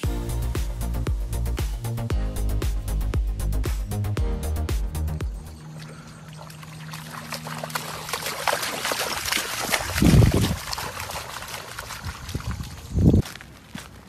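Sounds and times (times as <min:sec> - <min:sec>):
dog splashing through water: 0:05.8 - 0:13.2.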